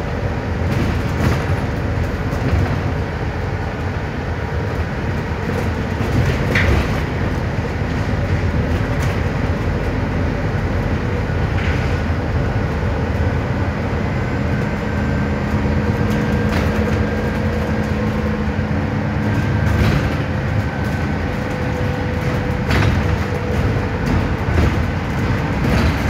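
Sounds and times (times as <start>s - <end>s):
bus engine and road noise: 0.0s - 26.0s
knocks from cabin fittings: 19.5s - 26.0s.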